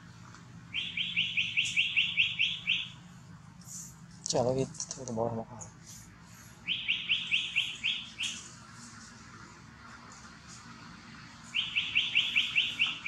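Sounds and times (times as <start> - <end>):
bird calling sharp high notes: 0.7 - 3.0, 6.6 - 8.5, 11.5 - 13.0
faint high bird chirps: 0.7 - 3.0, 6.6 - 8.5, 11.4 - 13.0.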